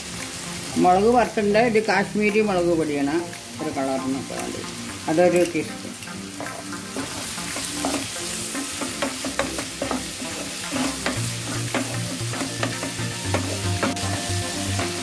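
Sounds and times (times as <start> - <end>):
vegetables sizzling in oil: 0.0 - 15.0
spatula scraping and tapping pan: 5.3 - 14.2.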